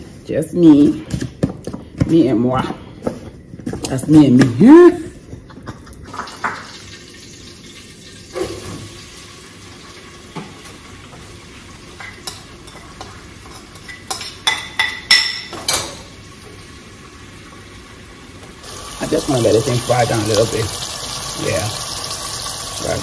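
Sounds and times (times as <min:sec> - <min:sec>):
faint stew sizzling: 0:06.1 - 0:14.4, 0:15.9 - 0:23.0
metal spoon clinking on pots: 0:12.0 - 0:16.0.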